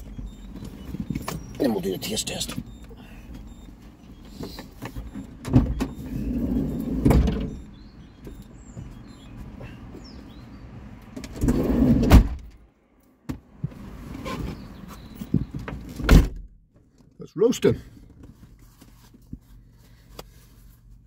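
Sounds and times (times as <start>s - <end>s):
van doors thudding shut: 5.4s - 8.4s, 11.3s - 12.5s, 15.2s - 16.5s
shuffling and rustling: 17.9s - 21.0s.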